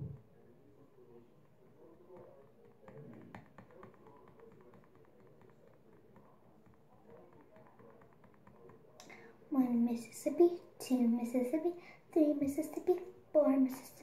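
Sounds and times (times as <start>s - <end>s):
faint taps and clicks: 1.4s - 9.2s.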